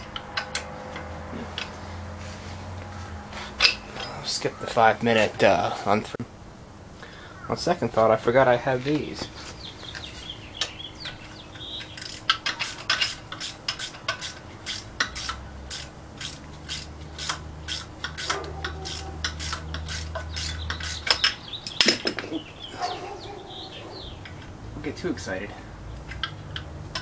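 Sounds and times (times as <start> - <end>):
ratcheting wrench clicking: 10.6 - 22.2, 26.0 - 27.0.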